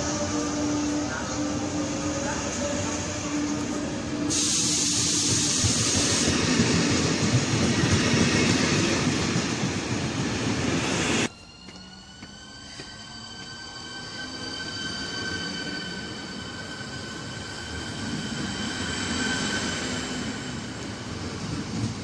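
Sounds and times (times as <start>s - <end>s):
train passing platform: 0.0s - 22.0s
electric train motor whine: 11.2s - 19.6s.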